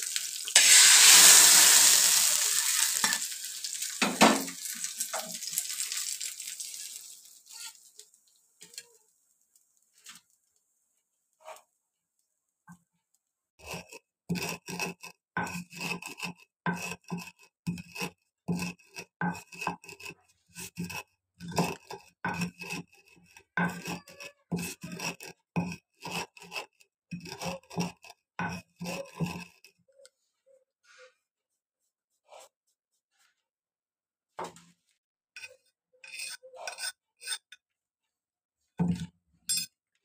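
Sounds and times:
rolling pin crushing spice: 13.6s - 29.8s.

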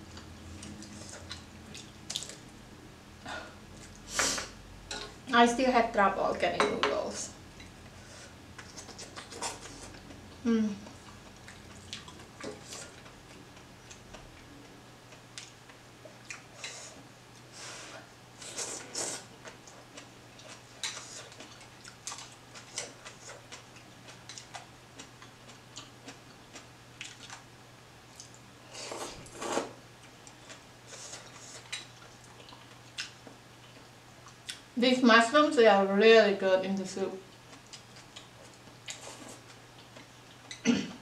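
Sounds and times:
person chewing: 0.1s - 2.4s, 8.6s - 14.5s, 16.2s - 16.7s, 18.4s - 27.4s, 28.1s - 34.6s, 37.3s - 40.6s
slurping noodles: 28.8s - 29.8s.

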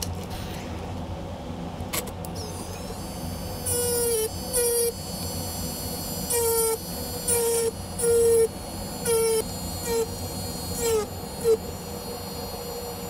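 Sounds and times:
rotary tool buzzing on wax: 2.8s - 13.0s.

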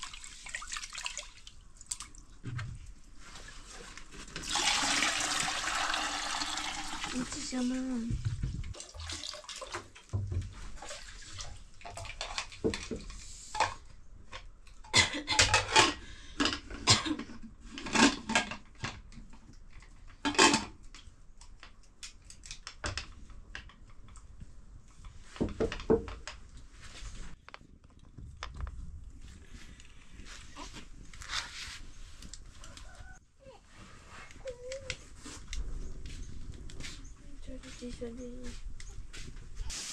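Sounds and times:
water splashing: 0.0s - 2.4s
metal pots and dishes clattering: 14.9s - 18.7s.

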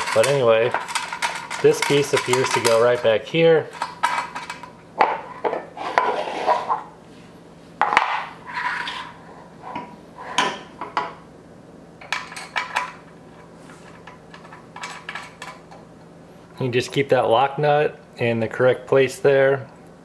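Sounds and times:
metal hardware clinking and scraping: 0.0s - 3.1s, 3.7s - 6.2s, 12.0s - 15.8s.

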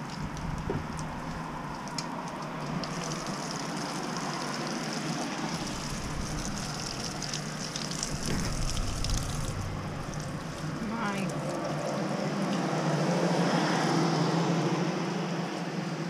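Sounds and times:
water splashing on metal grate: 0.0s - 12.5s
rain falling: 0.0s - 13.8s.

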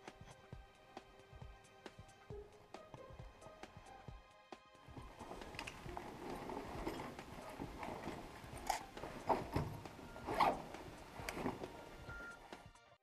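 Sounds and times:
continuous rustling: 4.9s - 13.0s
zip-like scraping: 5.2s - 12.6s.

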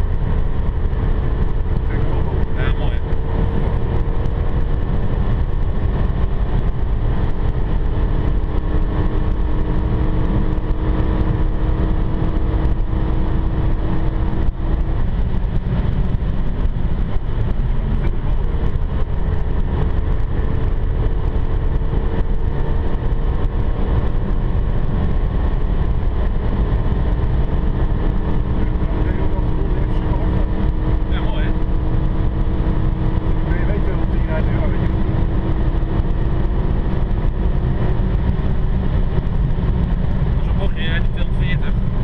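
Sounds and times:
car engine hum: 0.0s - 42.0s
road noise: 0.0s - 42.0s.

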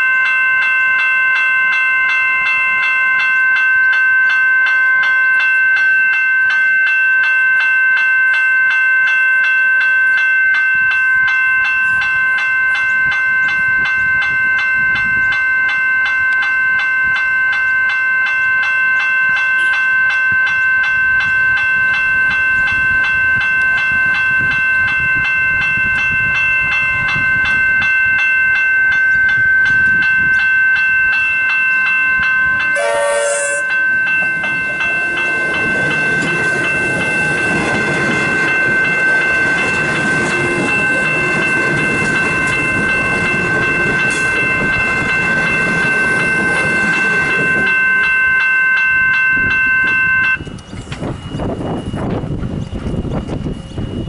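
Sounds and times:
level crossing bells ringing: 0.0s - 50.5s
electric train rumbling past: 0.0s - 54.0s
train horn blast: 32.7s - 33.8s.

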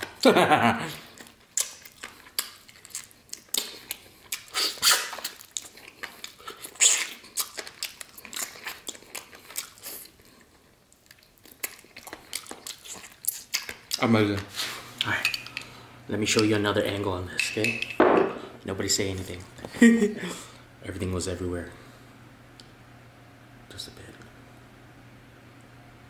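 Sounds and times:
person chewing chicken: 1.0s - 14.0s.

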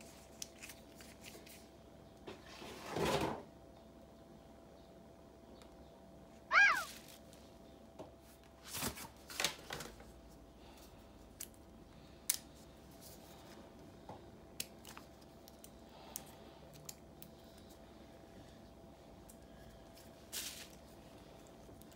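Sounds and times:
short high squeak: 6.5s - 6.9s.

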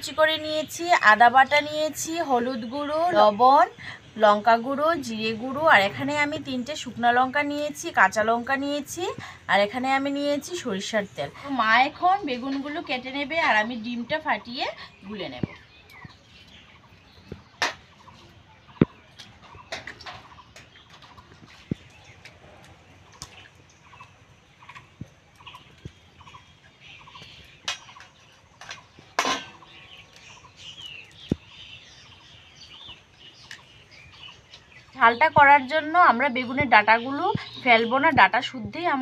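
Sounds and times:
bird chirps: 14.3s - 38.4s.

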